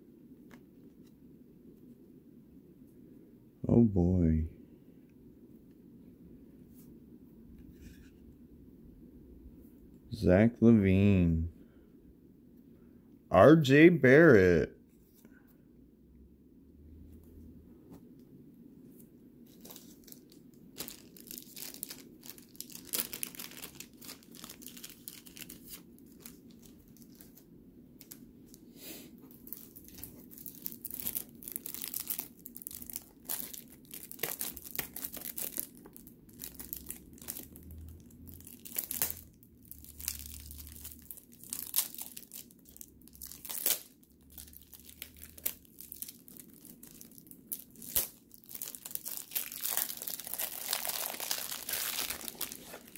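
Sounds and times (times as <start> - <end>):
foil wrapper tearing and crinkling: 19.5 - 27.4, 29.3 - 37.6, 38.3 - 52.9.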